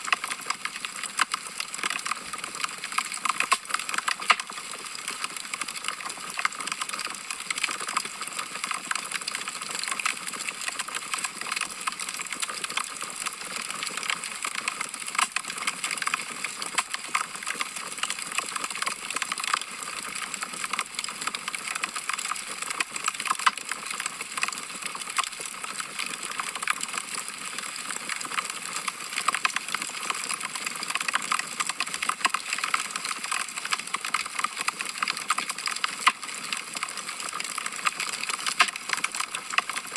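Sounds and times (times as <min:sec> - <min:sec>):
wood fire crackling: 0:03.0 - 0:04.6.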